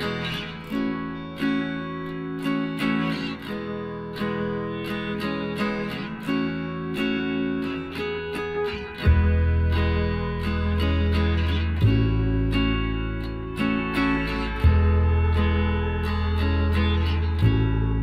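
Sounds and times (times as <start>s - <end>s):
acoustic guitar picking and strumming: 0.0s - 18.0s
deep bass note: 14.5s - 18.0s.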